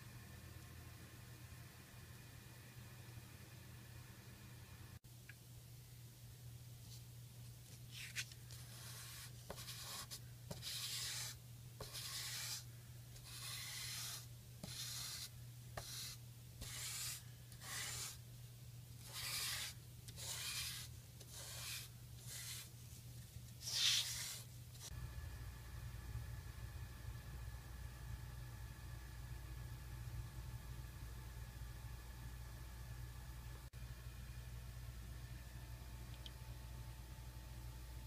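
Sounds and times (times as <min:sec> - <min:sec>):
chalk scratching on paper: 0:08.0 - 0:18.2, 0:19.0 - 0:22.8, 0:23.6 - 0:24.9.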